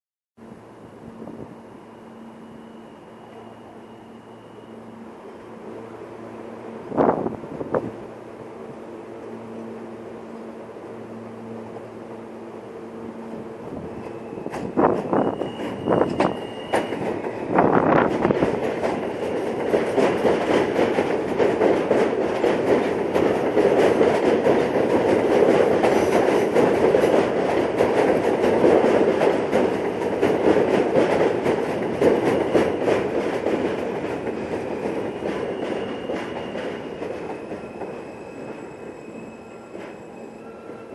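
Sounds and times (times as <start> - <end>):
train wheels rumbling on rail: 0.5 - 40.9
faint wheel squeal: 14.0 - 17.0, 35.0 - 40.9
rail joints clicking: 14.0 - 38.6.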